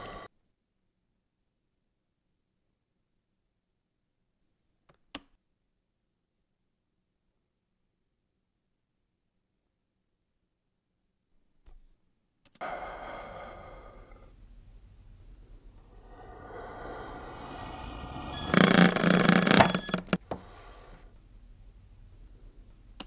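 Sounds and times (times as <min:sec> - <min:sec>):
ringing drone: 0:17.1 - 0:20.1.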